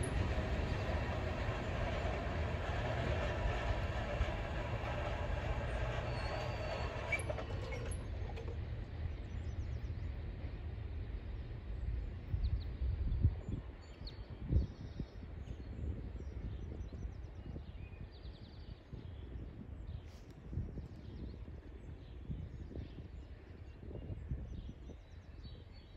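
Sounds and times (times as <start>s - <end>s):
freight train cars clattering: 0.0s - 8.9s.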